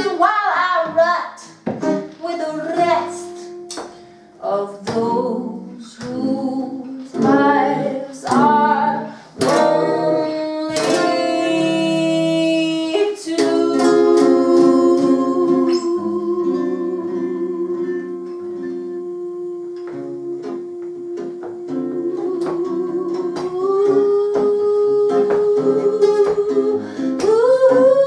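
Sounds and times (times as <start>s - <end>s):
woman singing jazz ballad: 0.0s - 3.7s, 4.4s - 28.0s
acoustic guitar chords: 0.0s - 28.0s.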